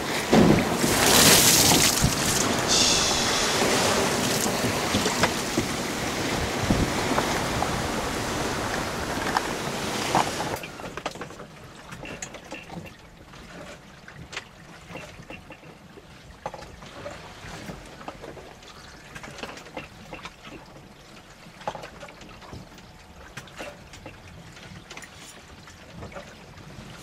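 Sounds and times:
strong wind: 0.0 - 10.6
wind buffeting microphone: 0.0 - 10.6
rough seas rushing: 0.0 - 11.0.

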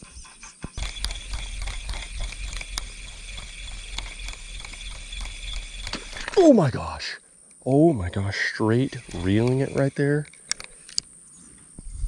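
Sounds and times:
insects buzzing: 0.0 - 12.0
fishing reel clicking rattle: 0.8 - 6.6, 8.6 - 11.1.

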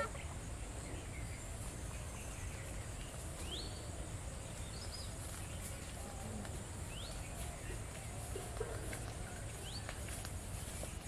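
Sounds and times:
bird calls: 0.0 - 11.0
low background noise: 0.0 - 11.0.

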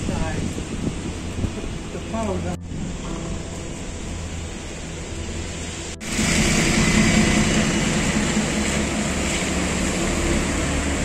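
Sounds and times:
traffic on a wet street: 0.0 - 11.0.

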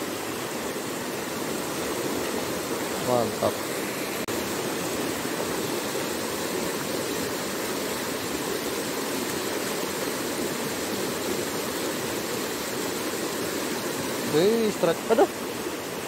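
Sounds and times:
stream rapids rushing over boulders: 0.0 - 16.0.

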